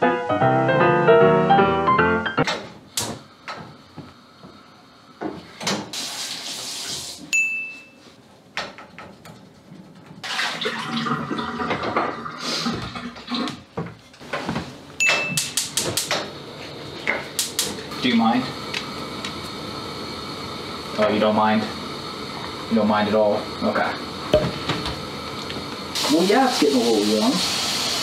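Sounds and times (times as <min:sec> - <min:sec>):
running water or sizzling: 0:03.4 - 0:07.3, 0:15.4 - 0:28.0
short high appliance beeps: 0:07.3 - 0:08.0, 0:15.0 - 0:15.6.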